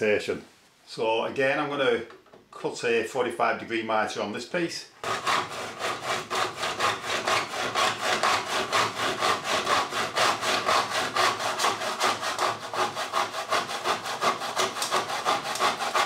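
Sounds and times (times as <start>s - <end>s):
saw cutting plastic: 5.0s - 16.0s.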